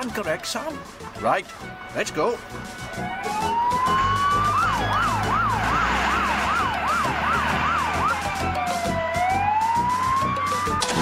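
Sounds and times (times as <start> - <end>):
fire engine siren: 2.5 - 11.0.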